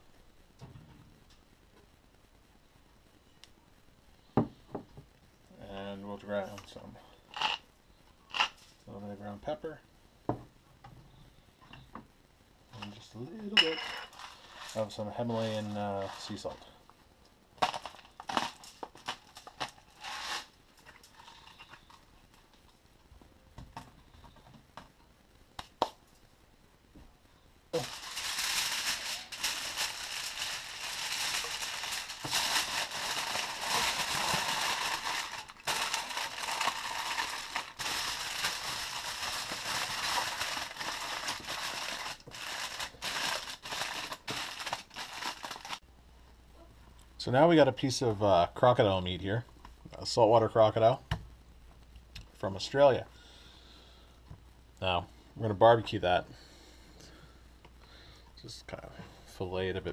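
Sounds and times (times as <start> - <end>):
aluminium foil crinkling: 13.9 - 16.9, 17.6 - 22.8, 27.7 - 45.8.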